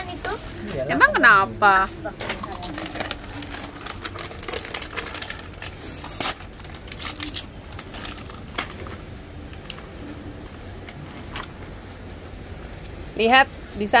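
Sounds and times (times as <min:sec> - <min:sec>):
crisps crunching: 0:02.2 - 0:09.8
plastic packets crinkling: 0:02.2 - 0:09.8.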